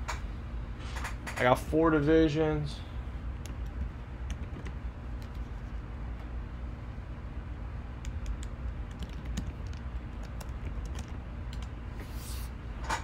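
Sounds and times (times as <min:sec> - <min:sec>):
low steady hum: 0:00.0 - 0:13.0
keyboard typing: 0:03.4 - 0:05.7, 0:08.0 - 0:11.8.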